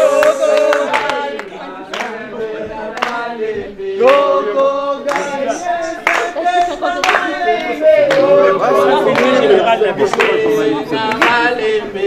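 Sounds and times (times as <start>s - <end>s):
group of voices singing: 0.0s - 12.0s
hand claps: 0.2s - 2.2s, 2.9s - 3.3s, 5.1s - 5.4s, 6.0s - 8.3s, 10.1s - 10.5s, 11.1s - 11.4s.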